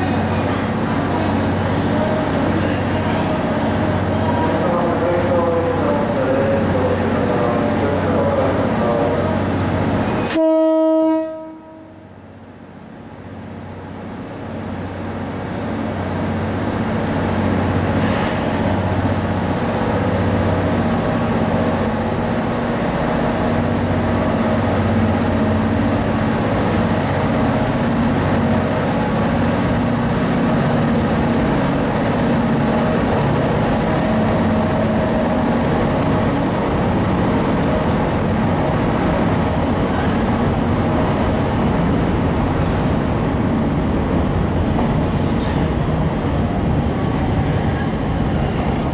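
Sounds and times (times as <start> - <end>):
train coaches rolling rumble: 0.0 - 48.9
train horn blast: 10.2 - 12.1.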